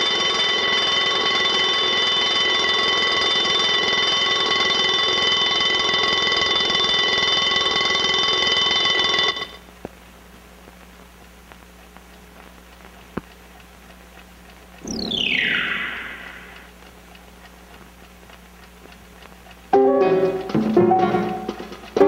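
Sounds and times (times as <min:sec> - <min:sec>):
mechanical alarm clock bell ringing: 0:00.0 - 0:09.6.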